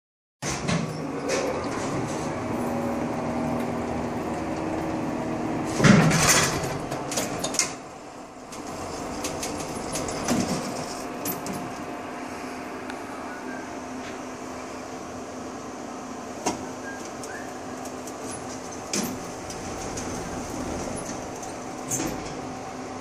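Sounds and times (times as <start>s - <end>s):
elevator machinery humming: 0.9s - 23.0s.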